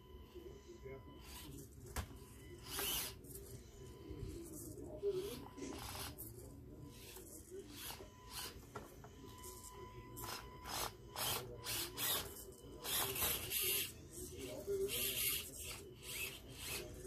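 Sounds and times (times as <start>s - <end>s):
small electric motor whining: 2.6s - 3.4s, 10.2s - 17.0s.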